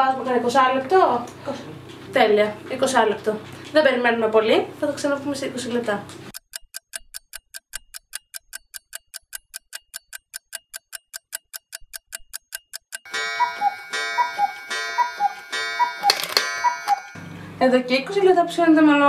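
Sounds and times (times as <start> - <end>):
clock ticking fast: 6.3 - 17.2
music with chiming melody: 13.1 - 17.2.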